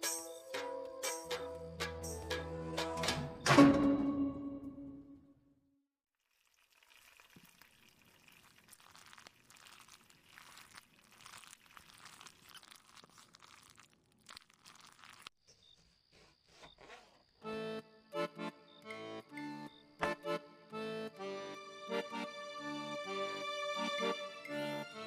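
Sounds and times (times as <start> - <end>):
mixture sizzling in a pan: 6.2 - 15.3.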